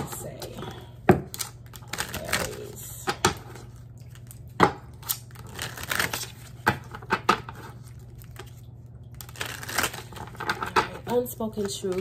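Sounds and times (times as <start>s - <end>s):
cards being shuffled: 5.0s - 12.0s.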